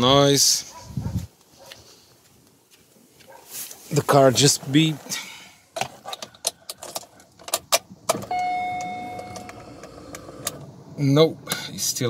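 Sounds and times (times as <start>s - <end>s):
ignition key clicks: 7.5s - 10.6s.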